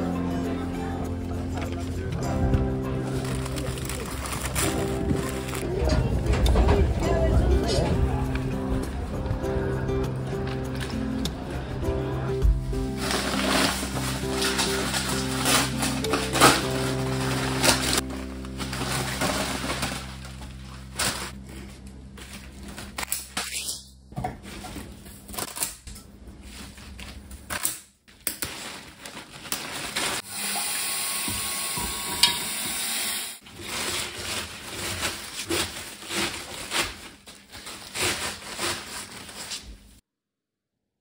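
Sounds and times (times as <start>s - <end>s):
soft background music: 0.0s - 25.6s
paper rustling: 3.0s - 6.0s, 13.0s - 23.6s, 26.4s - 30.2s, 33.4s - 40.0s.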